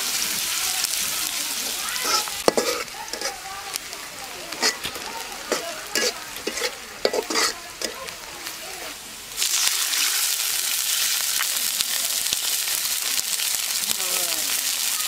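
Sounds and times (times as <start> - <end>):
loud steady sizzle: 0.0 - 15.0
onions frying in oil: 0.0 - 15.0.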